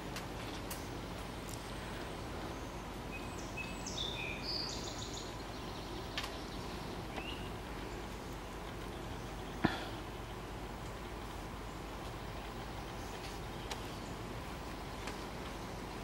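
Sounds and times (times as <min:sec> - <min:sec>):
outdoor background hiss: 0:00.0 - 0:16.0
rising bird chirp: 0:00.7 - 0:16.0
songbird whistled notes: 0:03.1 - 0:05.4.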